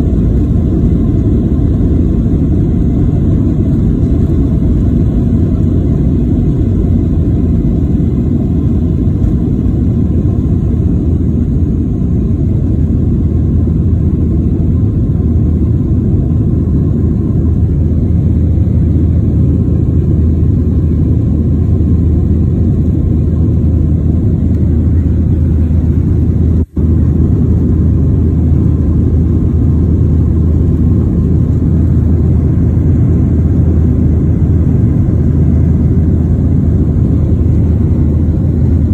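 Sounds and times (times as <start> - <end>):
jet engines rumbling in cabin: 0.0 - 38.9.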